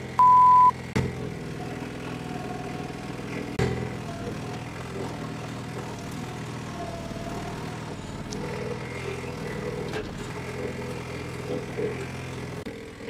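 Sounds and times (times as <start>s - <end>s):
diesel engine running: 0.0s - 13.0s.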